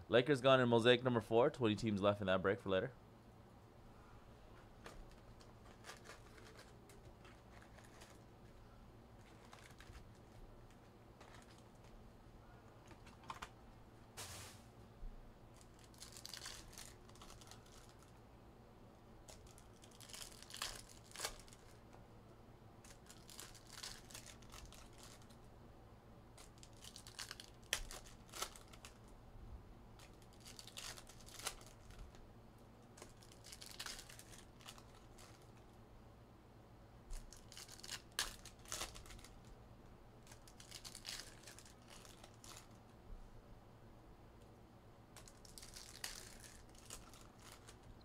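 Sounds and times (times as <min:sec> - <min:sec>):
foil wrappers tearing and crinkling: 0:04.8 - 0:08.3, 0:09.2 - 0:12.0, 0:15.5 - 0:18.1, 0:19.2 - 0:21.8, 0:22.8 - 0:25.4, 0:26.4 - 0:29.1, 0:30.0 - 0:32.2, 0:33.0 - 0:35.6, 0:37.1 - 0:39.5, 0:40.2 - 0:42.8, 0:45.2 - 0:48.0.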